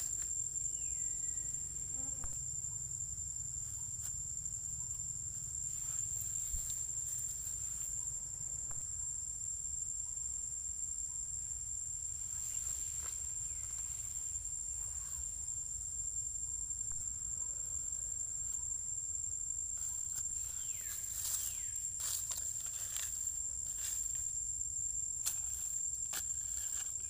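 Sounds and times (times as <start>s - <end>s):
insects droning: 0.0s - 27.0s.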